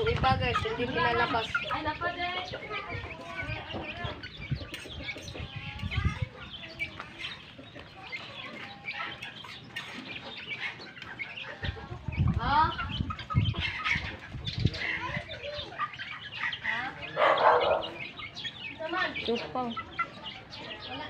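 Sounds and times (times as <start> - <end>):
chickens clucking and calling: 0.0 - 21.0.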